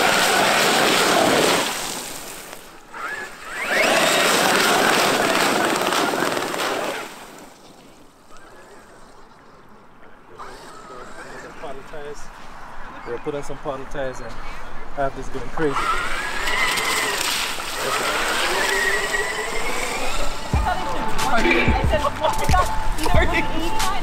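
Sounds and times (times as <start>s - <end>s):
rc truck tyres spraying water: 0.0s - 8.8s, 15.8s - 20.8s.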